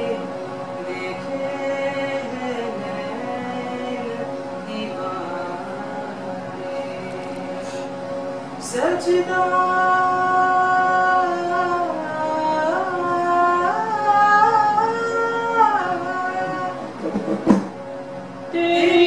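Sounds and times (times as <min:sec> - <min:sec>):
steady drone accompaniment: 0:00.0 - 0:19.0
woman singing long held notes: 0:08.6 - 0:16.9, 0:18.5 - 0:19.0
short sharp knock: 0:17.1 - 0:17.8.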